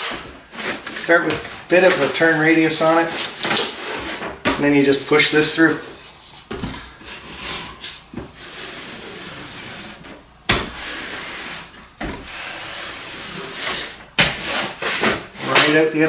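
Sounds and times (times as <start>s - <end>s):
track sliding and rubbing: 6.0s - 16.0s.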